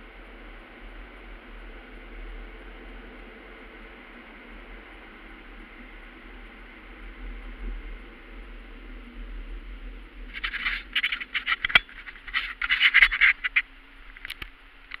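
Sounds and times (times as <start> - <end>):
loud irregular crackles and scrapes: 10.3 - 15.0.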